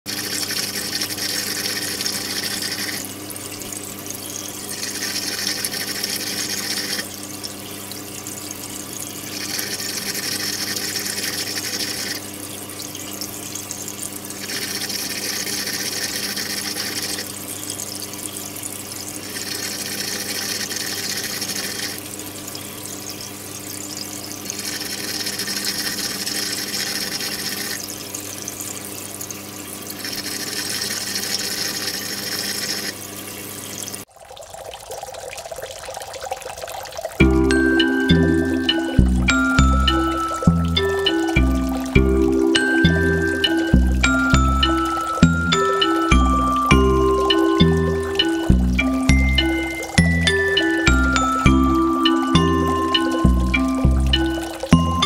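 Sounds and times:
aquarium pump humming: 0.0 - 17.4, 37.2 - 55.0
rushing trickling water: 0.0 - 55.0.

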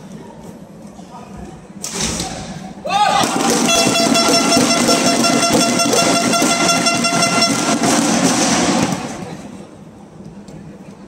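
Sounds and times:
loud crowd noise: 2.0 - 11.0
horn long steady note: 3.6 - 9.0.

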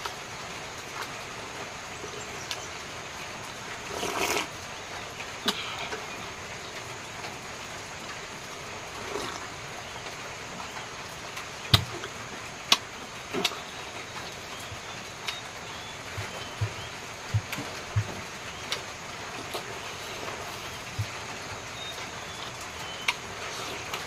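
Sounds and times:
steady background hiss: 0.0 - 24.0
man chewing: 3.8 - 4.6, 5.3 - 10.2, 11.4 - 24.0
lip smacks and clicks: 15.2 - 15.4.

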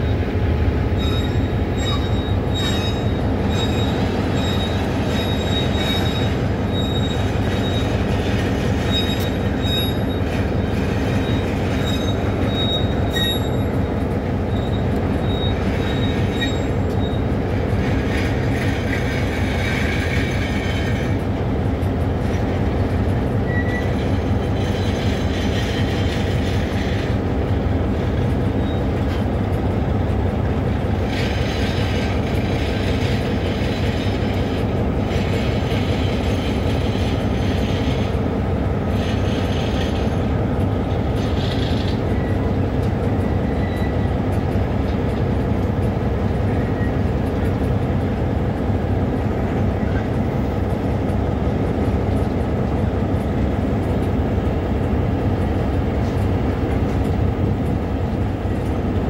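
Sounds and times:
train wheels rumbling on rail: 0.0 - 59.0
high wheel squeal: 0.9 - 21.2, 23.4 - 27.2, 28.4 - 29.2, 38.9 - 44.4, 46.5 - 47.1
low wheel squeal: 0.9 - 21.2, 23.4 - 27.2, 28.4 - 29.2, 38.9 - 44.4, 46.5 - 47.1.

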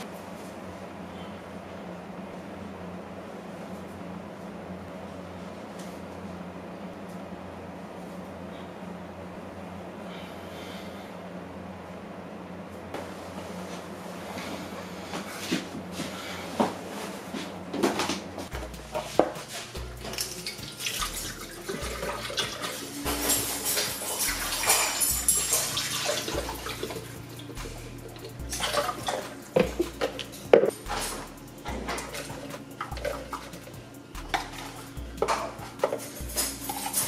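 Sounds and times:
background music with bass beat: 18.5 - 37.0.

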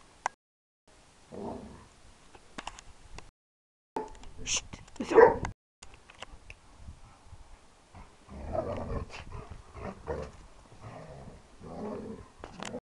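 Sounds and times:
dogs growling in play: 7.9 - 12.8.

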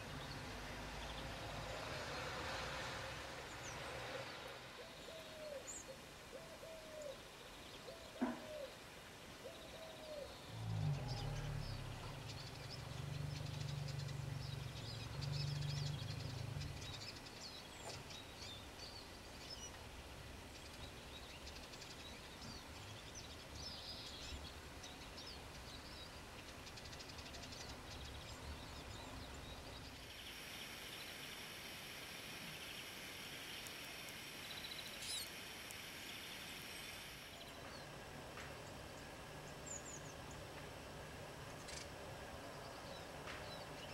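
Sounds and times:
small birds chirping: 9.4 - 40.7.

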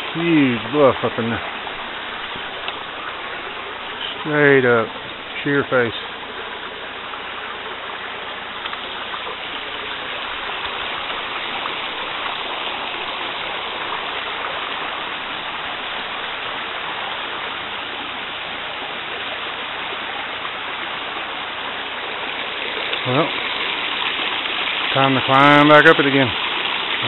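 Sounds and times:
stream flowing over stones: 0.0 - 27.0.

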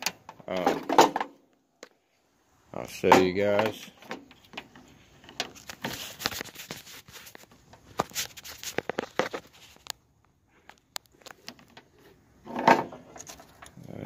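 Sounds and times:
hands handling plastic connector: 3.4 - 13.8.

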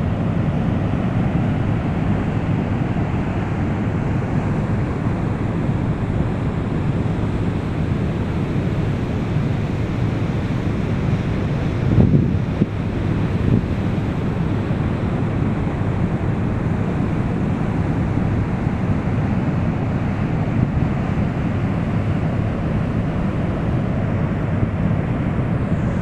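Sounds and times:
water rushing through spillway: 0.0 - 26.0.

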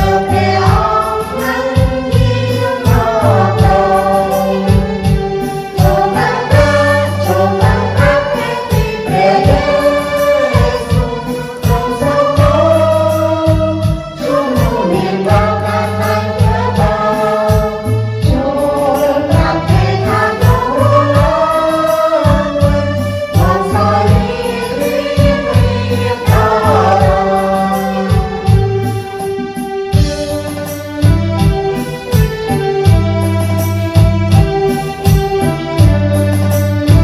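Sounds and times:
group singing a hymn: 0.0 - 29.0
instrumental backing music: 0.0 - 37.0.

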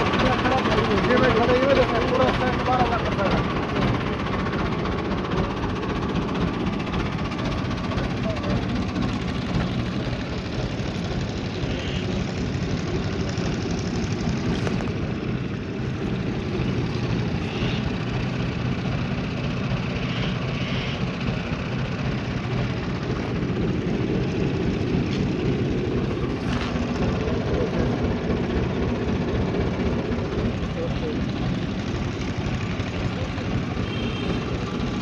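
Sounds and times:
tractor diesel engine idling: 0.0 - 35.0.

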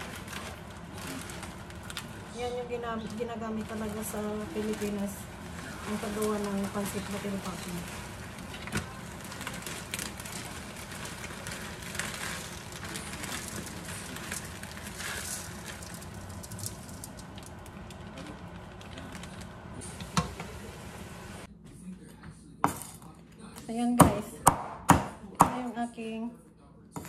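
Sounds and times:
noodles sizzling in a wok: 0.0 - 21.5.

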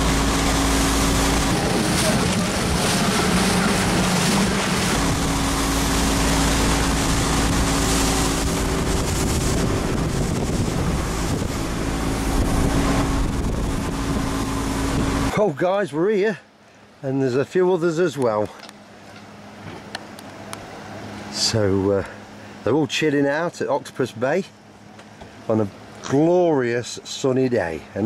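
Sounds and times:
wind buffeting microphone: 0.0 - 15.3
water rushing off hull: 0.0 - 15.8
boat engine drone: 0.0 - 28.0.

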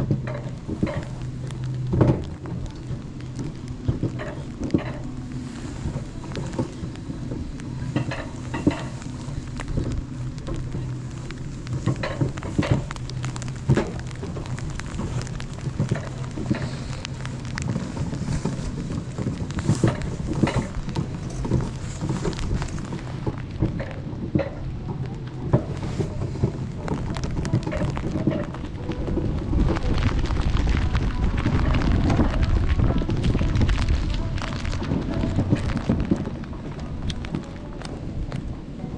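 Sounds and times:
sharp clicks and knocks: 0.0 - 30.1
toboggan rattling on track: 5.9 - 37.7.

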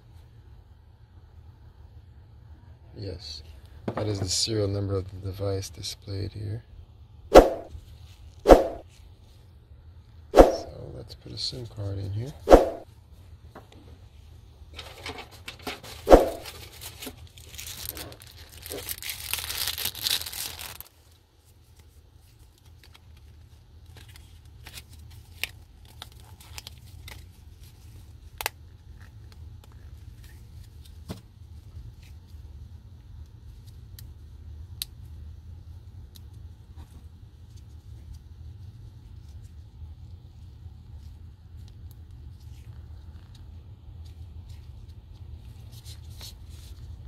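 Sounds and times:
plastic packaging tearing and crinkling: 15.6 - 31.0.

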